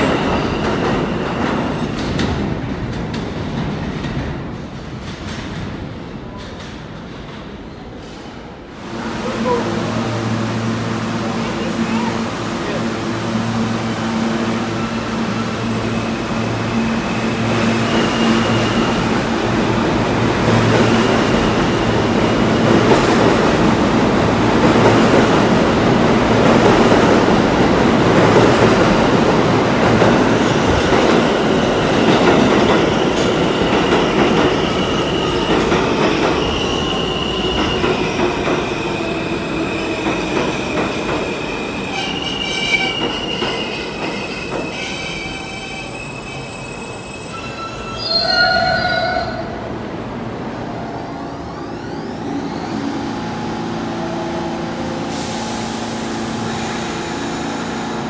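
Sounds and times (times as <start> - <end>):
train wheels squealing: 0.0 - 2.1, 16.7 - 19.2, 33.4 - 49.4
train rumbling past: 0.0 - 58.0.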